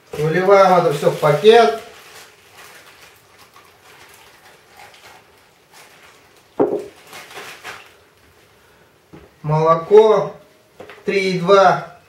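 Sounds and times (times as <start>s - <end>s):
plastic bag rustling: 0.0s - 8.6s
sharp knock: 6.6s - 6.9s.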